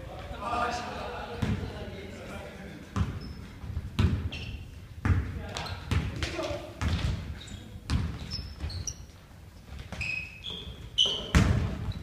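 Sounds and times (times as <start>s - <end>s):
sneaker squeaks: 3.0s - 4.8s, 5.5s - 6.1s, 6.8s - 12.0s
basketball thumping on floor: 4.0s - 4.3s.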